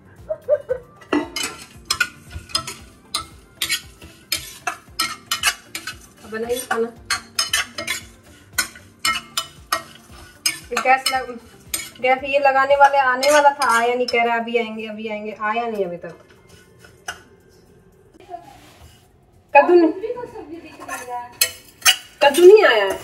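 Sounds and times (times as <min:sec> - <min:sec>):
metal spoon scraping a pan: 0:01.0 - 0:14.8, 0:15.6 - 0:17.4, 0:20.6 - 0:23.0.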